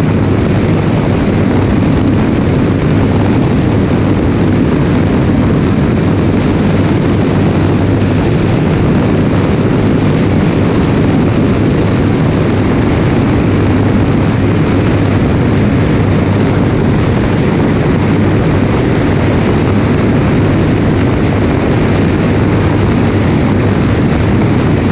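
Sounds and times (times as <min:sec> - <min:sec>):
propeller aircraft engine drone: 0:00.0 - 0:24.9
wind buffeting camera: 0:00.0 - 0:24.9.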